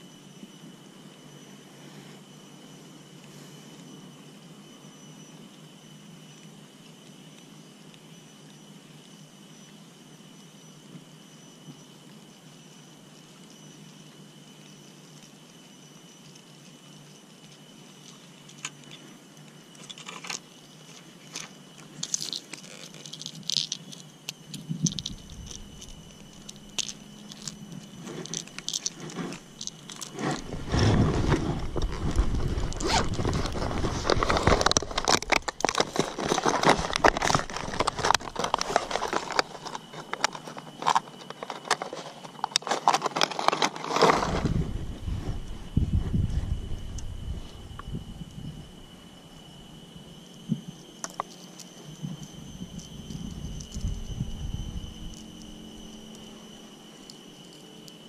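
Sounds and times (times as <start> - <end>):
fishing tackle clicks and scrapes: 19.8 - 44.4
loud rustling and crackling: 19.8 - 45.7.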